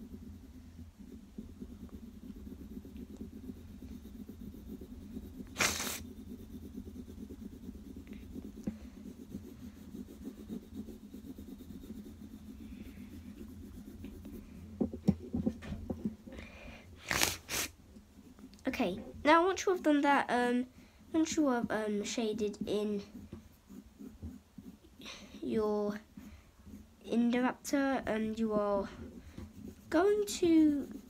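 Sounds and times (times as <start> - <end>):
pencil scratching on paper: 0.0 - 16.2, 16.9 - 31.0.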